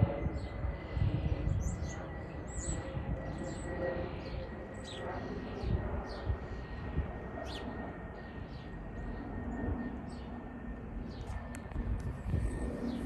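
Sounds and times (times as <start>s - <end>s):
jet airliner passing overhead: 0.0s - 13.0s.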